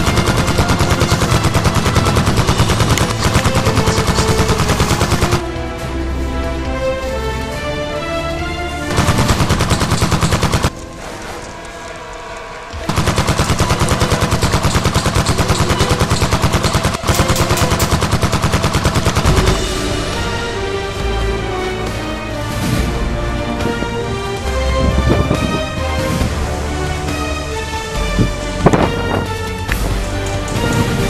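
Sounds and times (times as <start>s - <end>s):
rapid automatic gunfire: 0.0s - 5.4s, 8.9s - 10.7s, 12.8s - 19.7s
background music: 0.0s - 31.0s.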